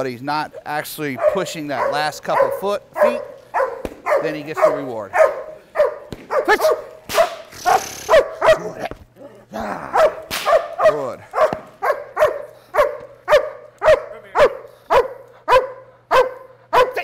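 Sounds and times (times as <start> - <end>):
dog barking sharply: 1.2 - 8.8, 10.0 - 17.0.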